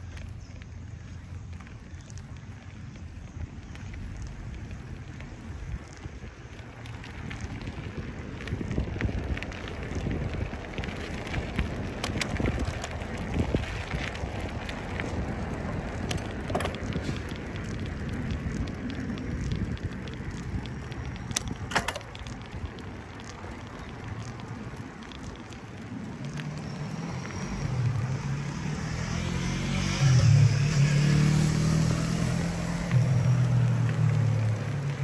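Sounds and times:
bicycle tyres crunching on dirt: 0.0s - 35.0s
wind rumble on microphone: 0.0s - 35.0s
bike and camera mount rattling: 10.8s - 23.6s.

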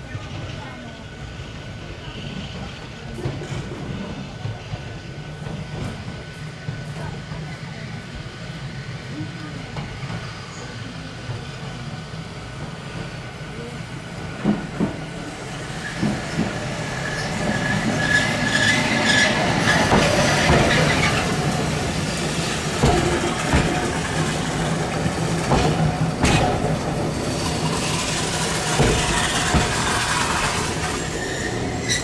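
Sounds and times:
tram motors and wheels rumbling: 0.0s - 32.0s
high wheel squeal: 15.6s - 21.6s, 28.7s - 32.0s
wheels clicking on rails: 15.9s - 32.0s.

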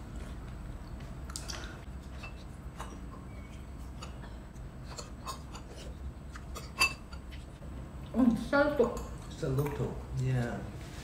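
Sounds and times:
low steady hum: 0.0s - 11.0s
metal spoons tapping ceramic bowls: 6.4s - 7.4s, 8.7s - 9.9s.

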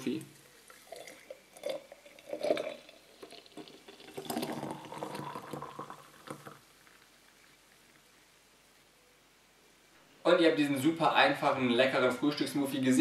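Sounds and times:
smoothie pouring into glass jar: 0.3s - 7.6s.

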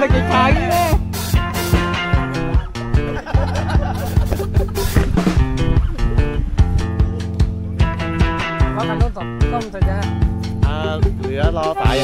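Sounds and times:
bass line: 0.0s - 12.0s
steady drum beat: 0.0s - 12.0s
gliding melodic line: 6.9s - 12.0s.

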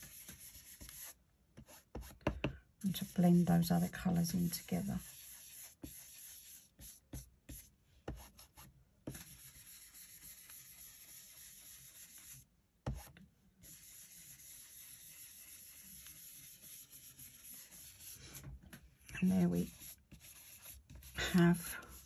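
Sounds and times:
brush rubbing over card: 0.0s - 2.2s, 2.9s - 12.4s, 13.6s - 18.5s, 19.1s - 22.0s.

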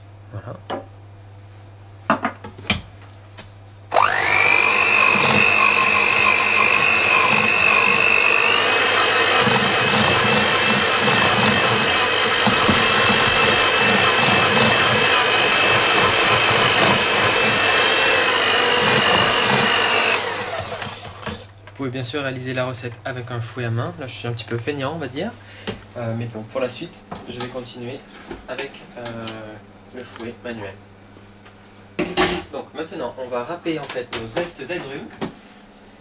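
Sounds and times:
electric hand mixer whining: 3.9s - 21.5s.

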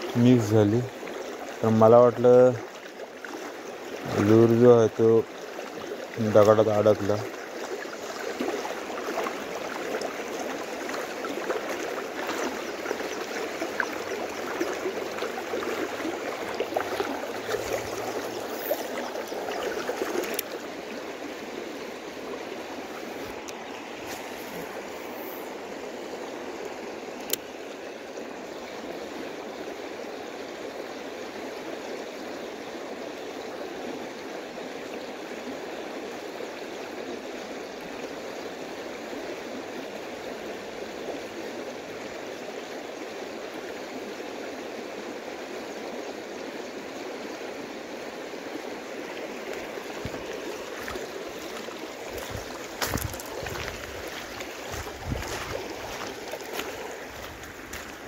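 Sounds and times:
creek water rushing over rocks: 0.0s - 58.0s.

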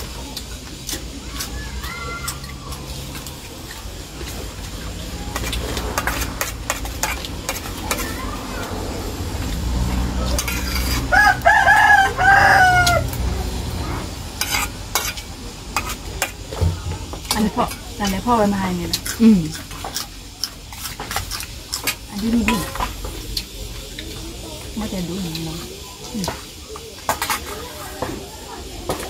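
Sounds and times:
spoons clinking on metal bowls: 5.3s - 8.2s, 10.3s - 11.0s, 14.4s - 16.4s, 17.2s - 23.5s
rooster crowing: 10.9s - 13.3s.

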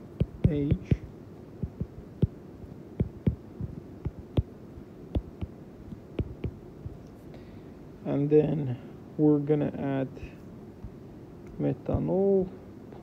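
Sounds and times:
faint steady hum: 0.0s - 13.0s
stylus tapping on glass screen: 0.2s - 1.0s, 1.6s - 2.4s, 3.0s - 4.5s, 5.2s - 7.0s.

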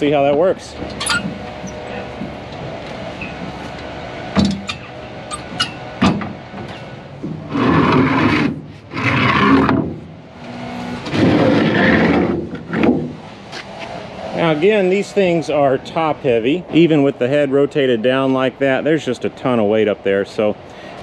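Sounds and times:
sharp knocks: 5.5s - 7.4s
wooden boards scraping and dragging: 5.5s - 14.5s.

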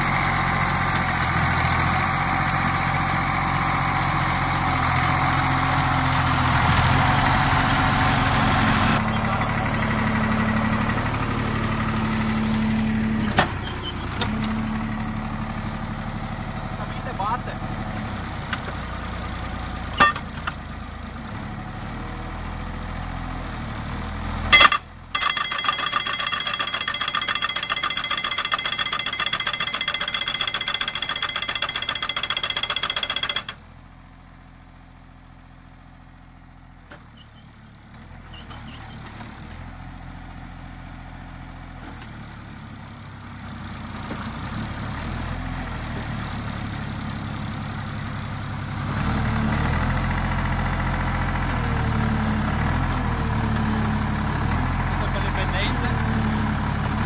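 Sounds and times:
pile driver engine running: 0.0s - 57.0s
hammer pounding a post: 20.0s - 20.5s.

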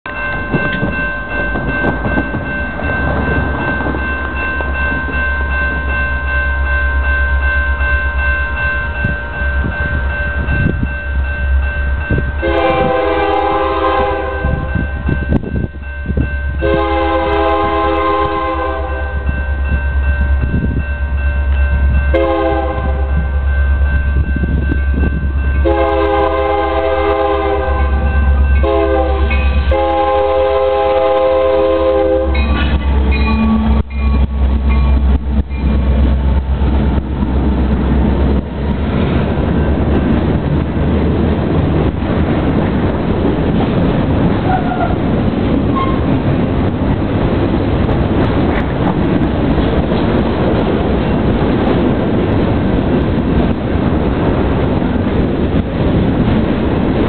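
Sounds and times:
locomotive air horn blasts: 12.4s - 14.7s, 16.6s - 19.1s, 22.1s - 23.2s, 25.6s - 32.5s.

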